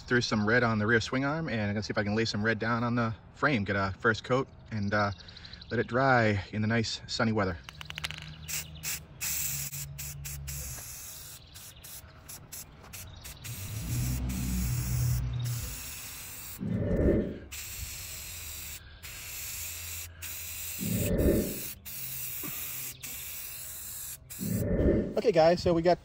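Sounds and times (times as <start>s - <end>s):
spray paint can hissing: 7.7s - 16.6s, 17.4s - 24.6s.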